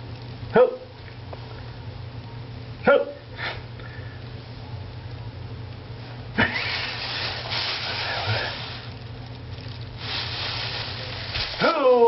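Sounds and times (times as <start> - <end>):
steady low hum: 0.0 - 12.0
plastic bag rustling: 6.5 - 12.0.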